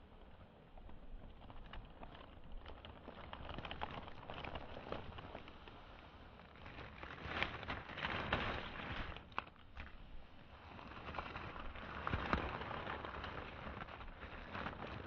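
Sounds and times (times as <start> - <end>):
dry leaves rustling and crackling: 0.8 - 15.0.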